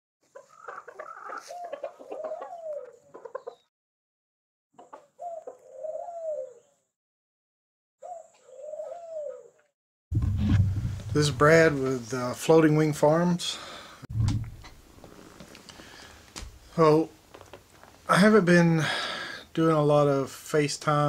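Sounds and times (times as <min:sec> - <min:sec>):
chickens clucking: 0:00.2 - 0:03.7, 0:04.8 - 0:06.6.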